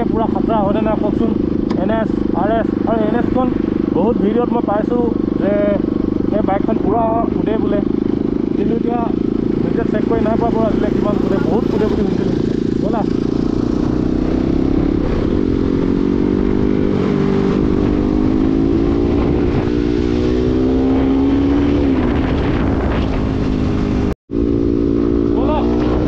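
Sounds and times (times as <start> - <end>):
motorcycle engine running: 0.0 - 26.0
wind noise on microphone: 12.0 - 26.0.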